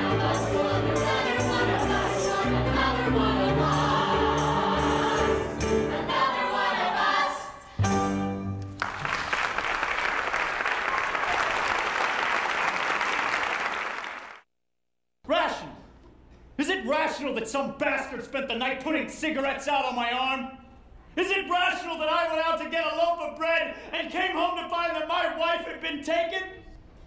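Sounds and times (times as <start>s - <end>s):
cast singing with accompaniment: 0.0s - 7.7s
audience applause: 8.8s - 14.4s.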